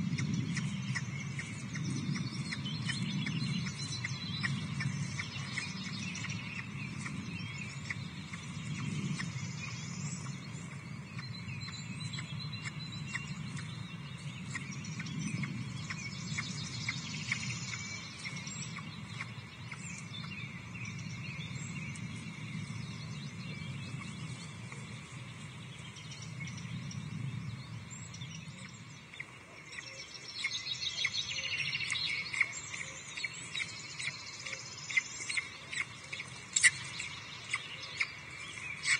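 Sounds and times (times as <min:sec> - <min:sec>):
low rumble: 0:00.0 - 0:29.2
small birds chirping: 0:00.0 - 0:38.9.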